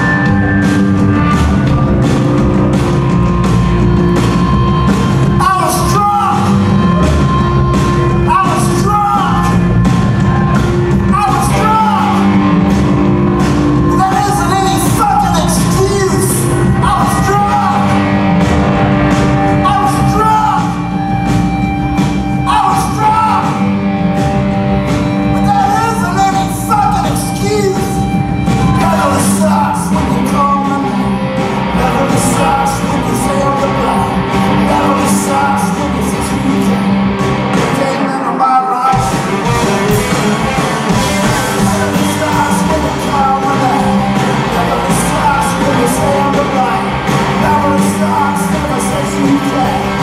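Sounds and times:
bass guitar: 0.0 - 50.0
drums: 0.0 - 50.0
electric guitars: 0.0 - 50.0
person singing lead vocal: 5.3 - 12.4, 13.8 - 18.0, 19.5 - 21.0, 22.4 - 23.6, 25.3 - 50.0.

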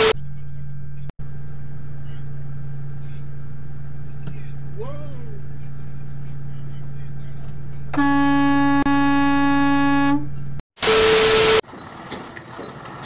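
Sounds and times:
low engine hum: 0.2 - 10.6
vehicle horn blast: 7.9 - 10.4.

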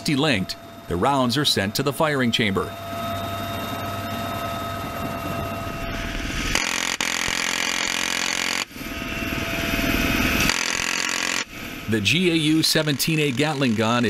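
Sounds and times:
helicopter cabin whine: 0.0 - 14.0
gatling gun firing bursts: 6.6 - 8.7.

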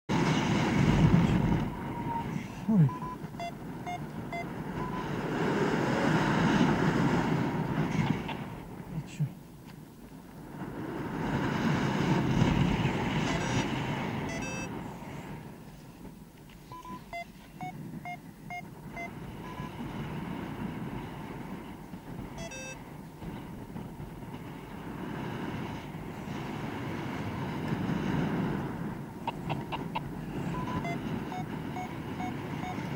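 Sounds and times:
wind rushing over microphone: 0.1 - 32.9
variometer short electronic beeps: 1.6 - 5.2, 13.3 - 13.7, 14.3 - 14.7, 16.7 - 19.8, 22.4 - 22.8, 29.3 - 32.9.

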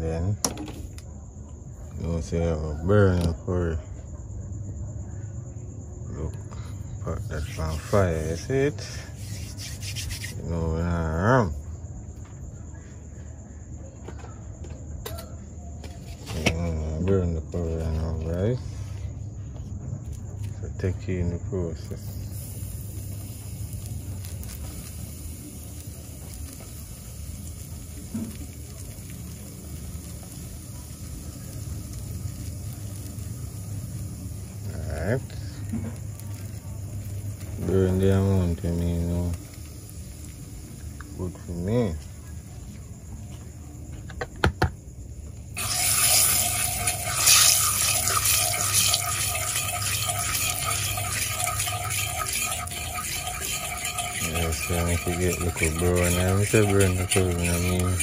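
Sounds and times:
spices sizzling in oil: 7.3 - 10.8, 21.7 - 43.0, 45.5 - 58.0
spoon stirring in pot: 45.6 - 58.0.

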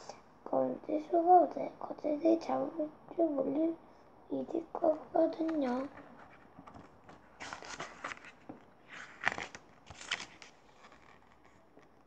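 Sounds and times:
book pages turning: 5.4 - 12.0.

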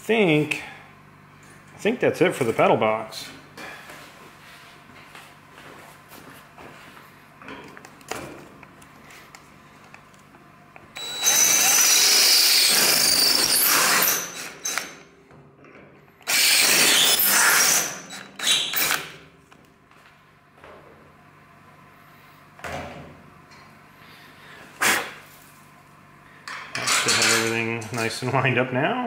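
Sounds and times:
cordless drill whining: 11.0 - 15.0, 16.2 - 19.1.

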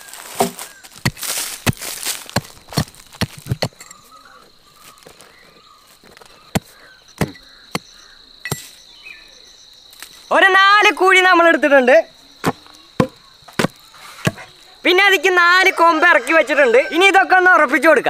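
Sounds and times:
tool digging and scraping soil: 0.0 - 8.9, 12.4 - 14.6
high insect call: 0.0 - 18.0.

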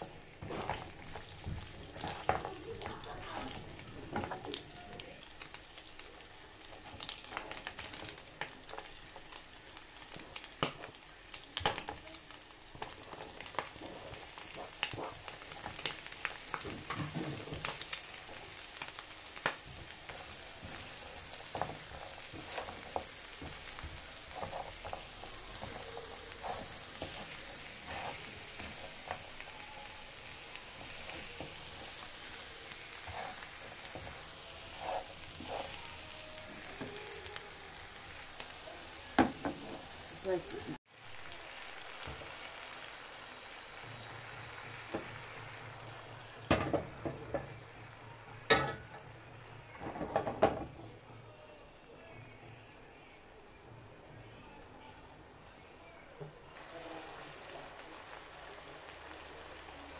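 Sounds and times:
meat sizzling in frying pan: 0.0 - 51.1, 53.4 - 59.9
spatula clacking and scraping pan: 0.4 - 4.6, 12.8 - 18.4, 19.4 - 29.4.

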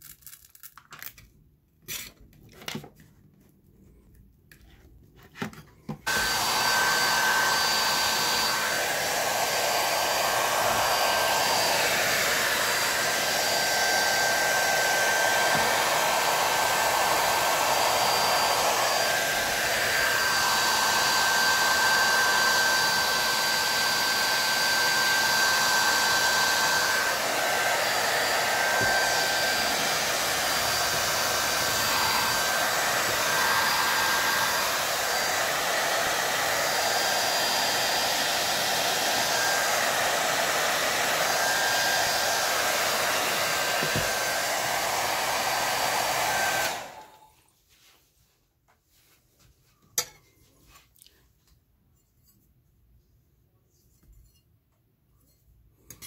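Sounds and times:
hair dryer running: 6.0 - 47.4.

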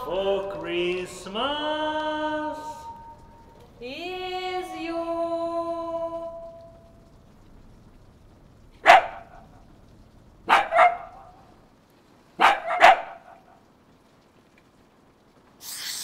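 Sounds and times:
dog barking: 8.8 - 9.4, 10.5 - 11.4, 12.4 - 13.6.

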